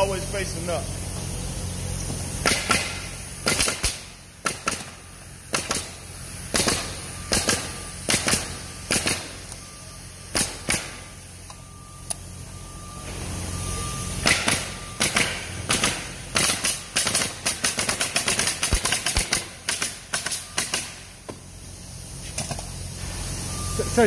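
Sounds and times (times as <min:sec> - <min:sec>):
nail gun shots into wood: 0:02.4 - 0:05.9, 0:06.5 - 0:09.3, 0:10.3 - 0:11.0, 0:14.2 - 0:21.0.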